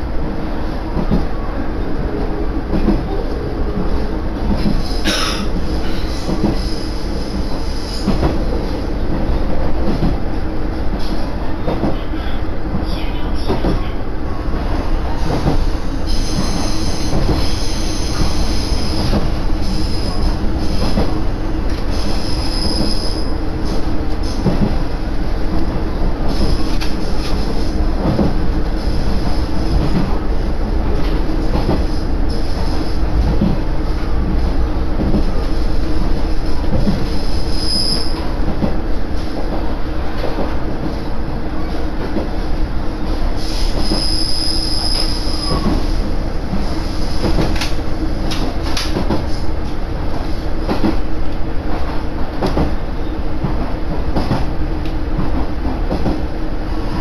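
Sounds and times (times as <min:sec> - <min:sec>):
train wheels and engine rumbling: 0:00.0 - 0:57.0
high wheel squeal: 0:16.1 - 0:19.0, 0:21.9 - 0:23.4, 0:37.2 - 0:38.2, 0:43.5 - 0:45.8.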